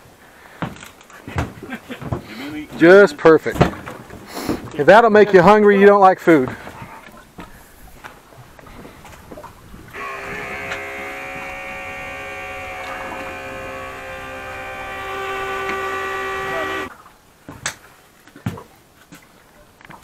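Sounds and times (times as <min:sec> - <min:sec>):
electric motor humming: 0:09.9 - 0:16.9.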